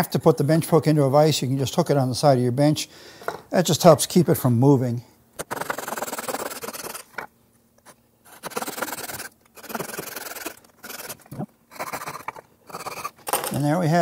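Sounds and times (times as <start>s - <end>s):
handsaw cutting wood: 5.4s - 7.1s, 8.3s - 13.5s.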